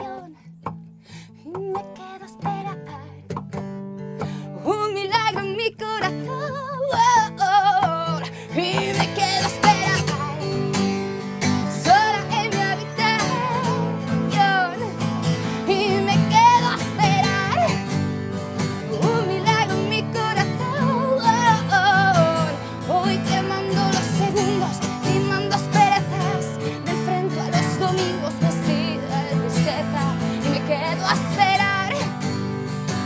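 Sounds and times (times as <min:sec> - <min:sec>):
woman singing: 0:00.0 - 0:00.5, 0:01.4 - 0:03.4, 0:04.2 - 0:33.0
strummed acoustic guitar: 0:00.0 - 0:33.0.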